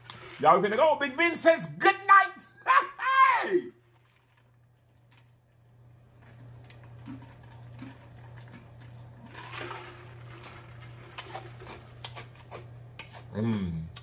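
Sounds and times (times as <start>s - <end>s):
person gulping a drink: 6.2s - 12.1s.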